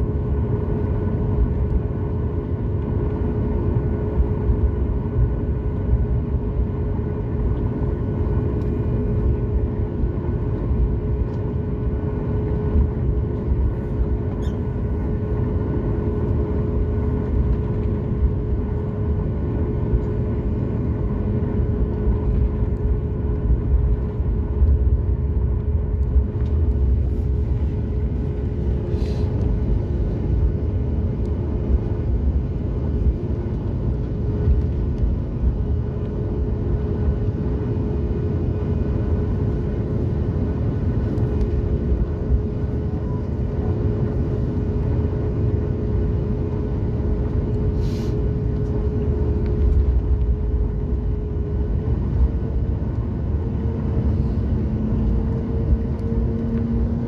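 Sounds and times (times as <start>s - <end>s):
deep rumble: 0.0s - 57.0s
jet engines humming at low thrust: 0.0s - 57.0s
brief hiss: 47.8s - 48.2s.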